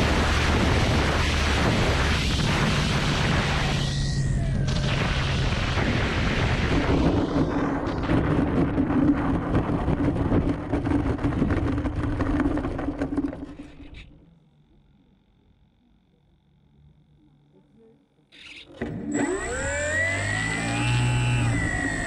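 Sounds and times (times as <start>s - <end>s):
wind rushing over camera: 0.0s - 13.0s
model plane motor idling: 19.1s - 22.0s.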